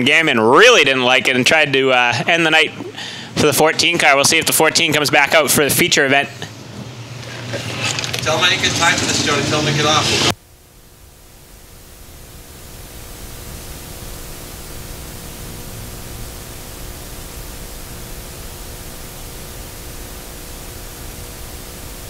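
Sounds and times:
recording hiss: 8.2 - 22.0.

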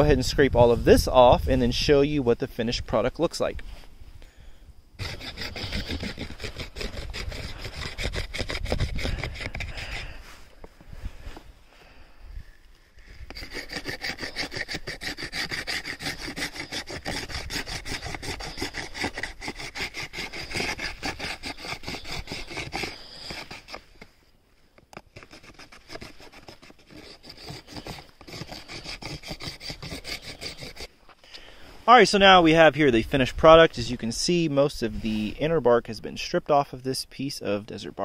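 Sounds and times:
knife scraping bark off stick: 5.0 - 10.2, 12.9 - 24.1, 24.9 - 30.9.

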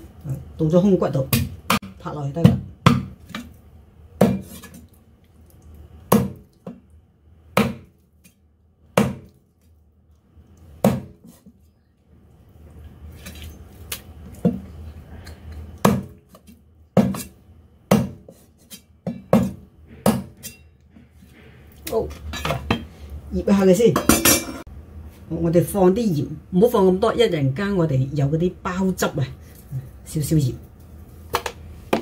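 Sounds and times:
cleaver chopping on wooden block: 2.4 - 3.2, 7.6 - 7.9, 9.0 - 9.3, 17.9 - 18.3.

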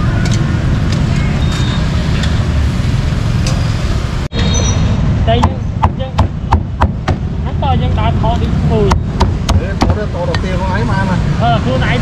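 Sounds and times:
street traffic noise: 0.0 - 12.0
people talking: 7.4 - 12.0.

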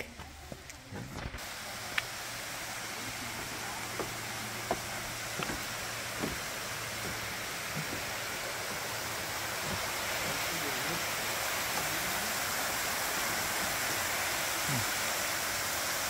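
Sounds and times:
small waterfall rushing: 0.0 - 16.0
sharp clicks and knocks: 4.0 - 8.0.

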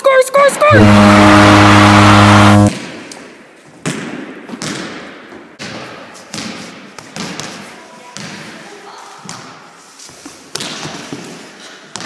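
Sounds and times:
buzzing goal horn blast: 0.6 - 2.8
ball bouncing in echoing gym: 2.7 - 9.7, 10.5 - 12.0.

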